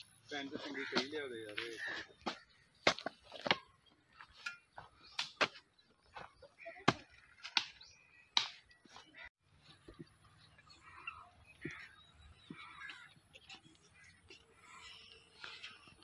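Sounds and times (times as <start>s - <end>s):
hoe blade striking dry soil: 0.6s - 1.3s, 1.9s - 5.6s, 6.8s - 8.7s.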